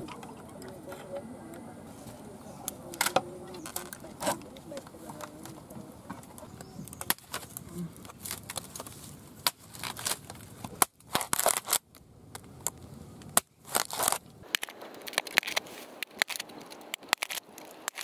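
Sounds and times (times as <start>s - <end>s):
machete cutting bamboo: 7.0s - 11.8s, 13.3s - 18.0s.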